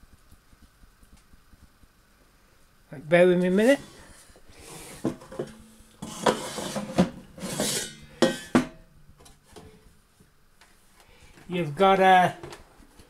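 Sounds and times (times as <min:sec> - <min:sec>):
plastic basket scraping on wood: 0:03.6 - 0:08.6.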